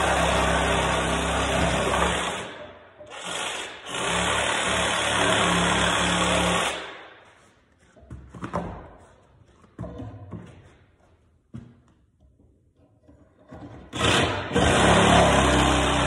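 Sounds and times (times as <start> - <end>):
reciprocating saw cutting wood: 0.0 - 7.0, 13.9 - 16.0.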